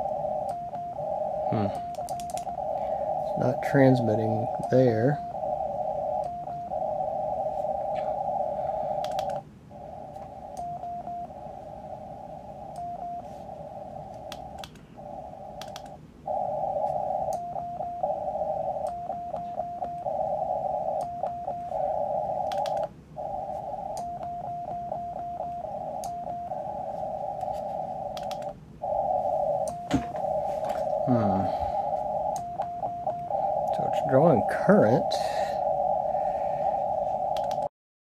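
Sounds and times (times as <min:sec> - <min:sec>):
radio tuning stutters: 0:00.0 - 0:10.6, 0:16.3 - 0:37.6
radio receiver hiss: 0:00.0 - 0:37.7
faint control clicks: 0:09.0 - 0:09.4, 0:15.6 - 0:16.0, 0:28.1 - 0:28.6, 0:37.3 - 0:37.7.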